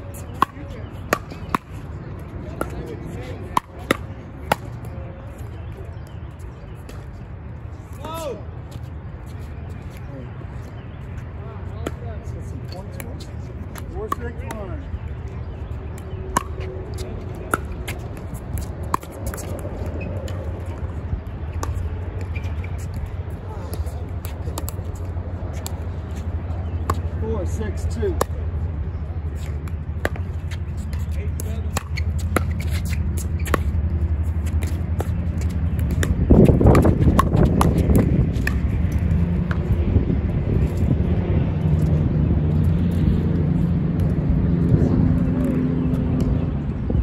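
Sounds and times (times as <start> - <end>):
wind rumble on microphone: 28.4 - 47.0
ball bouncing on court: 29.4 - 39.8.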